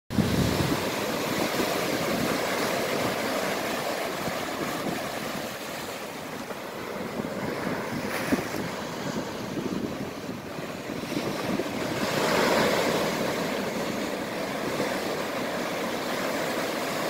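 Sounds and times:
ocean surf breaking on shore: 0:00.1 - 0:17.0.

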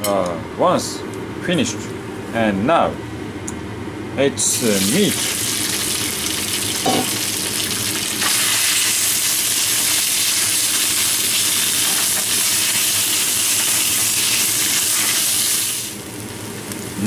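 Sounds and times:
meat sizzling in a wok: 0:04.8 - 0:17.0.

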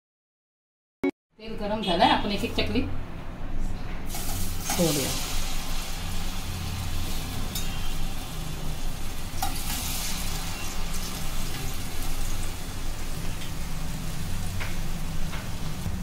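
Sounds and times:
dough sizzling in hot oil: 0:04.1 - 0:16.0.

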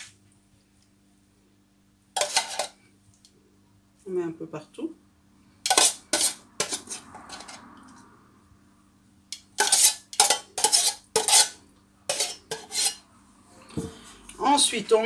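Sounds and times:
spoon scraping and knocking on pan: 0:02.2 - 0:02.8, 0:05.6 - 0:07.7, 0:09.4 - 0:13.0.

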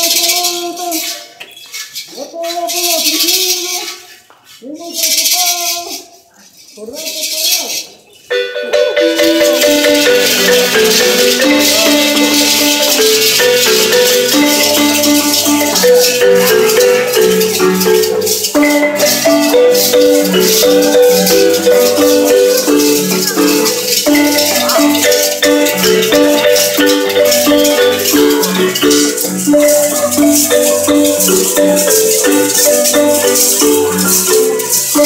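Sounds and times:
hand rattles shaking: 0:00.0 - 0:04.2, 0:04.8 - 0:35.0
marimba playing rolled notes: 0:08.3 - 0:35.0.

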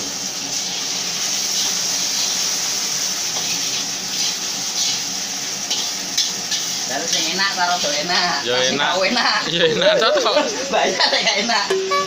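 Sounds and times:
egg sizzling in hot oil: 0:00.0 - 0:12.0
spatula stirring in a wok: 0:00.6 - 0:09.4.

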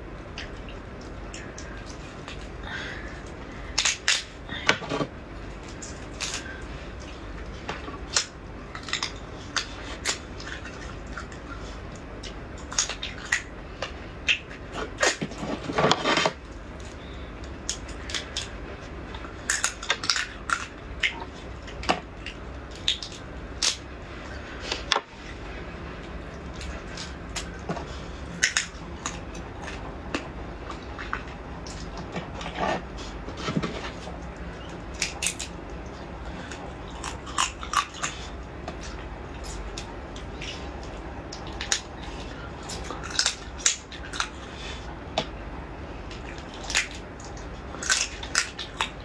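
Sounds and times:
crab shell cracking and crunching: 0:00.3 - 0:04.4, 0:05.6 - 0:06.7, 0:07.4 - 0:18.5, 0:19.1 - 0:23.9, 0:28.3 - 0:32.2, 0:34.2 - 0:44.5, 0:46.1 - 0:49.0.

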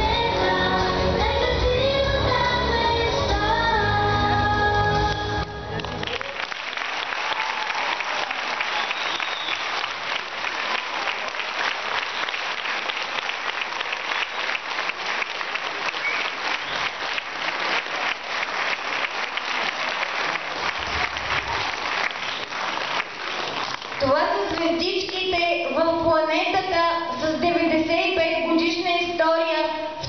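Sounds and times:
audience applauding: 0:05.6 - 0:24.6.

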